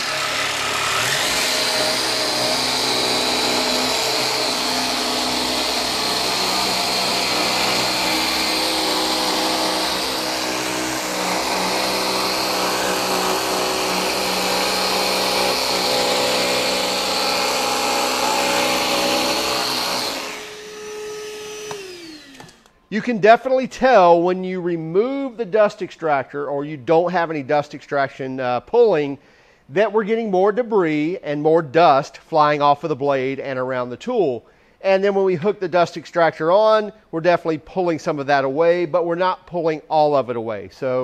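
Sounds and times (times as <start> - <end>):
dust extractor running: 0.0 - 22.6
jigsaw sawing plywood: 0.0 - 22.7.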